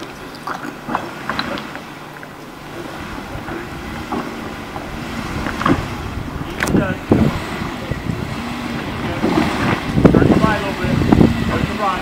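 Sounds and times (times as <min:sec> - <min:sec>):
car engine running at low revs: 0:00.0 - 0:12.0
wind on microphone: 0:02.4 - 0:12.0.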